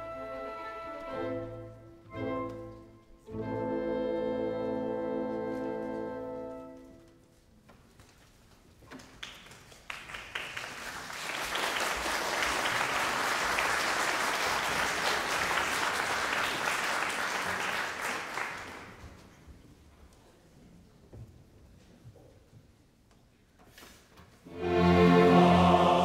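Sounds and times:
audience applauding: 9.0 - 19.2.

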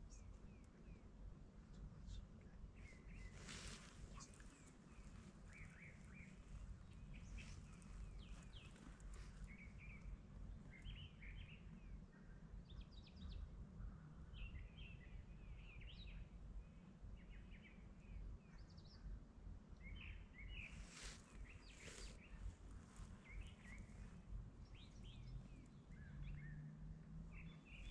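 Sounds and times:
steady low rumble: 0.0 - 15.3, 20.7 - 27.9
small birds chirping and trilling: 1.7 - 19.1, 19.8 - 27.9.

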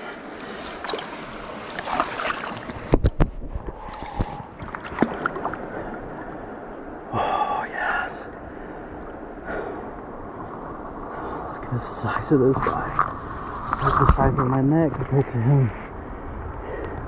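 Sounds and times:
river water rushing: 0.0 - 3.0.

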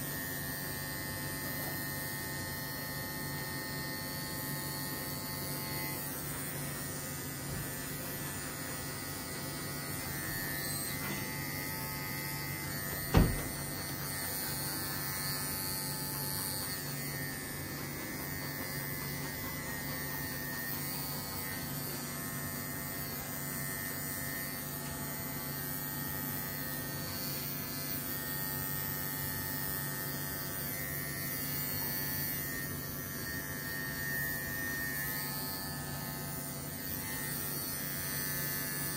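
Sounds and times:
electric clippers buzzing: 0.0 - 38.9
sharp knock: 13.1 - 13.5.

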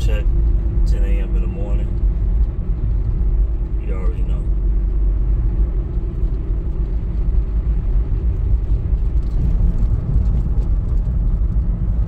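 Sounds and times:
car road and engine rumble: 0.0 - 12.0.

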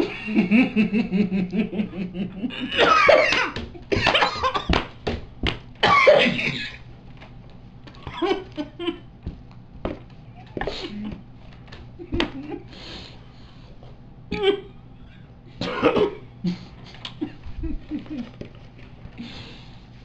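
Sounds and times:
stifled laughter: 0.0 - 4.7, 8.0 - 9.2, 10.5 - 11.3, 12.0 - 12.7, 14.3 - 14.8, 16.5 - 18.5
loud coughing: 2.4 - 4.8, 5.8 - 6.8, 15.6 - 17.2.

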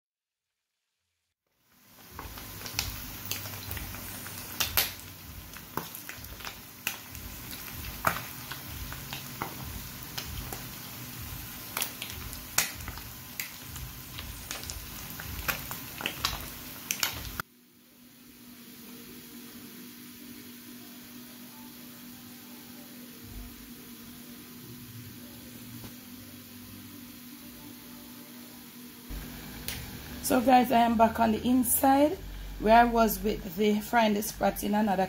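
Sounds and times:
fish frying in hot oil: 1.5 - 17.4, 29.1 - 33.5.

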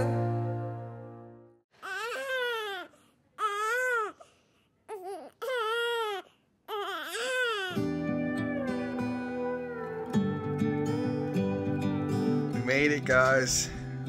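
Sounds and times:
music: 0.0 - 1.6, 7.8 - 14.0
newborn baby crying: 1.8 - 4.3, 4.9 - 12.3.

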